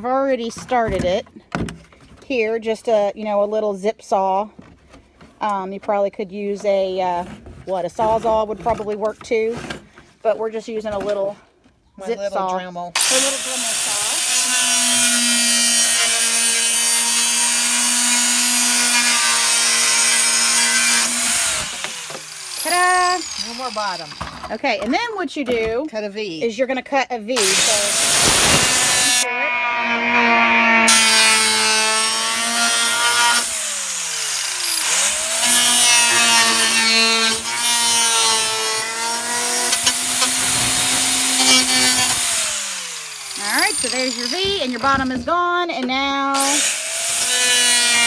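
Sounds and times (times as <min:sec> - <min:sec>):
power saw whining through plastic: 0:13.0 - 0:25.0, 0:27.4 - 0:45.4, 0:46.4 - 0:48.0.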